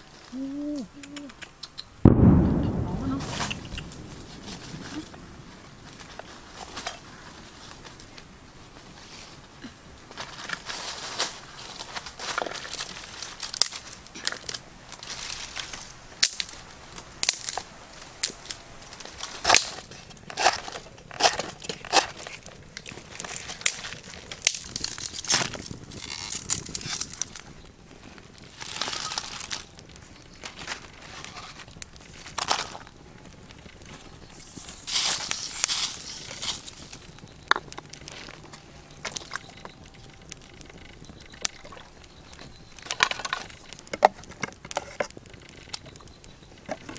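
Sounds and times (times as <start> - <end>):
scraping rustle: 10.1 - 16.7, 33.6 - 37.2
crunching and tearing snaps: 10.2 - 46.9.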